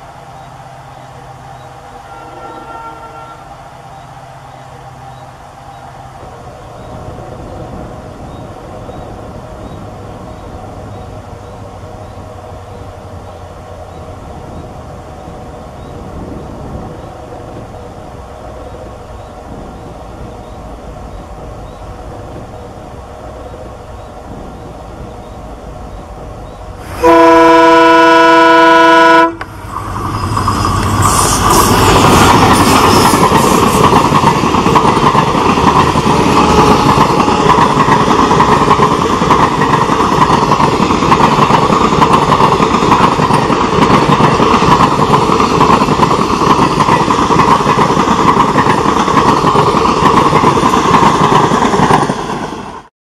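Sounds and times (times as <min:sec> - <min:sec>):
train passing with rail noise: 0:00.0 - 0:52.9
train horn blast: 0:02.0 - 0:03.8, 0:26.8 - 0:29.5
wheels clicking over rail joints: 0:29.4 - 0:52.8.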